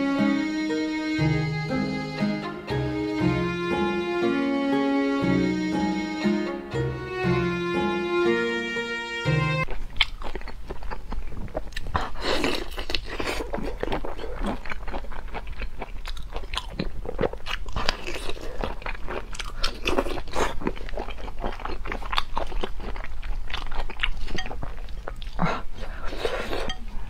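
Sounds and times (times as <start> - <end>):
wet biting and chewing: 9.6 - 27.0.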